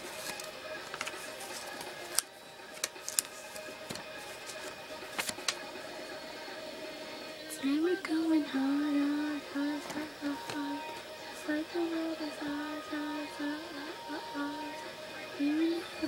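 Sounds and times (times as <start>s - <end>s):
quiet background music: 0.0s - 16.0s
woman singing: 5.8s - 16.0s.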